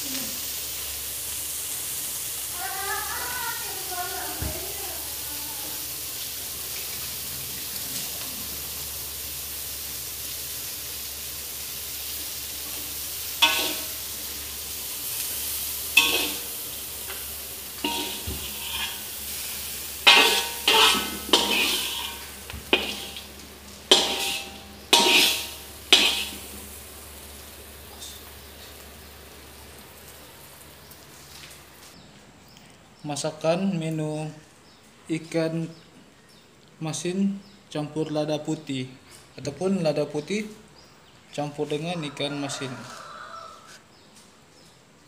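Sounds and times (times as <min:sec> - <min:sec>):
fish sizzling in a wok: 0:00.0 - 0:32.0
metal spatula scraping a wok: 0:13.4 - 0:14.2, 0:15.4 - 0:26.6.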